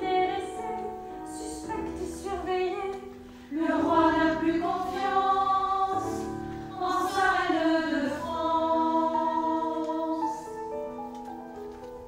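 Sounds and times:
choir singing: 0:03.5 - 0:10.5.

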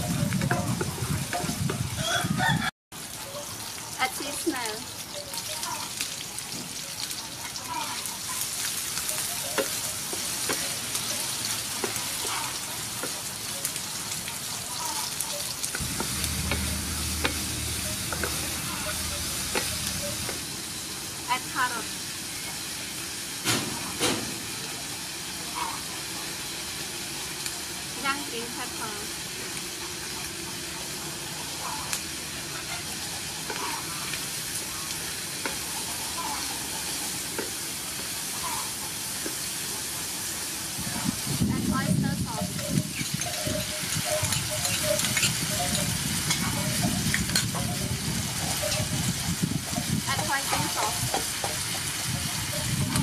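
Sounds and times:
food sizzling in hot oil: 0:00.0 - 0:53.0
wooden spatula turning food: 0:09.0 - 0:13.8, 0:15.7 - 0:20.5.

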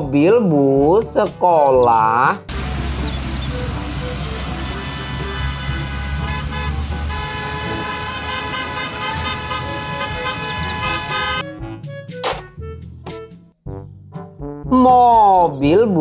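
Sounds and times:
bus engines rumbling: 0:02.4 - 0:11.4
bus horns blaring: 0:02.5 - 0:11.5
brass music jingle: 0:02.5 - 0:12.0.

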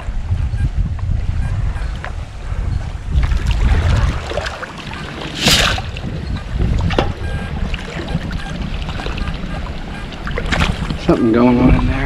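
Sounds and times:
wind: 0:00.0 - 0:12.0
moving water: 0:01.4 - 0:12.0
water splashing from scoop: 0:03.2 - 0:06.0.

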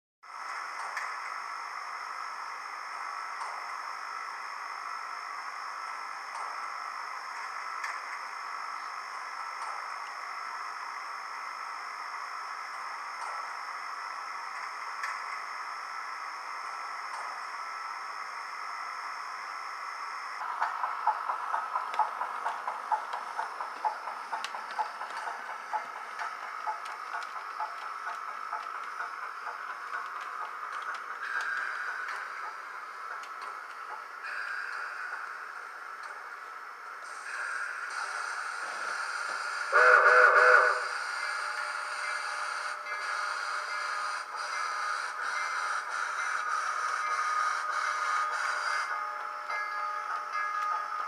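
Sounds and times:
steady hiss: 0:00.3 - 0:51.0
model steam whistle blast: 0:39.0 - 0:48.9.

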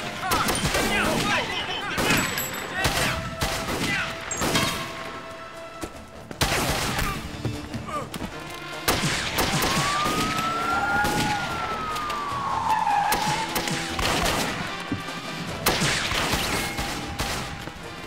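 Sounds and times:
gunshots: 0:00.0 - 0:05.0, 0:06.4 - 0:07.2, 0:08.7 - 0:11.8, 0:13.0 - 0:14.9, 0:15.5 - 0:17.9
car tyres screeching: 0:11.7 - 0:15.3.

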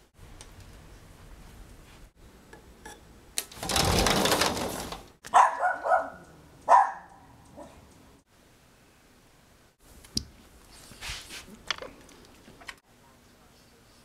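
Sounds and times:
small dog barking: 0:05.3 - 0:07.8.

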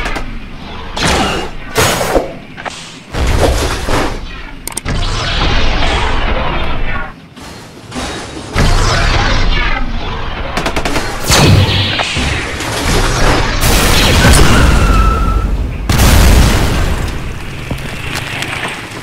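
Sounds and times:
heavy booms: 0:11.2 - 0:17.7.

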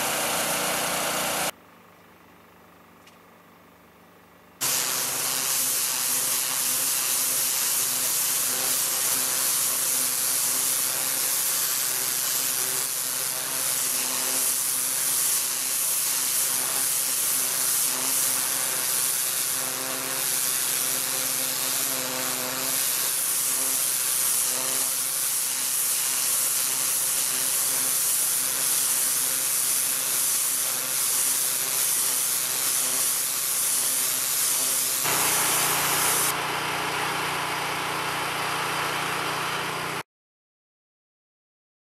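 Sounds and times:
water jet hissing on tarmac: 0:00.0 - 0:01.5, 0:04.6 - 0:19.6, 0:22.6 - 0:36.3.

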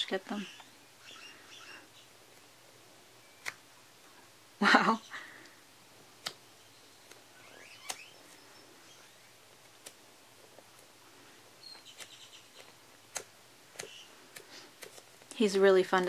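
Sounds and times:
sharp clicks: 0:06.2 - 0:06.4, 0:07.1 - 0:08.1, 0:11.8 - 0:15.0.

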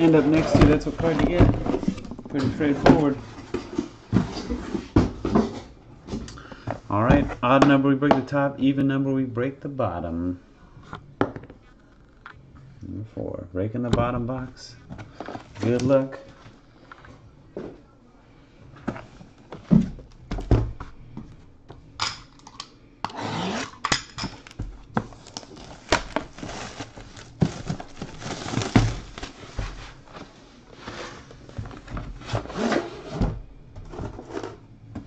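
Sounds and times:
knocks and thumps of box handling: 0:00.0 - 0:08.3, 0:18.8 - 0:21.3, 0:24.3 - 0:35.0
plastic shrink-wrap crinkling and tearing: 0:25.1 - 0:29.4.

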